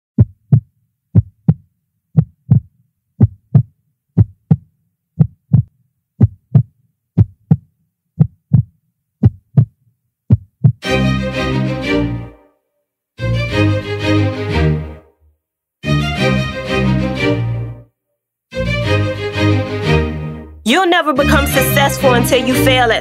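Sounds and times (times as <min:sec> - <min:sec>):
heartbeat thumps: 0:00.2 - 0:10.8
music: 0:10.8 - 0:23.0.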